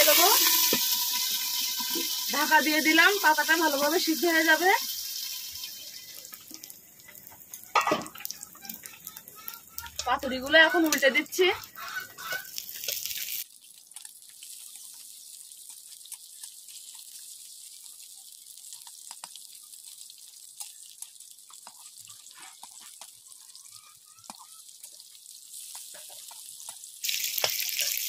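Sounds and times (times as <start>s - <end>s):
food sizzling in oil: 0.0s - 28.0s
oil spitting and popping: 0.1s - 2.3s, 6.3s - 10.1s, 11.7s - 23.4s, 24.2s - 28.0s.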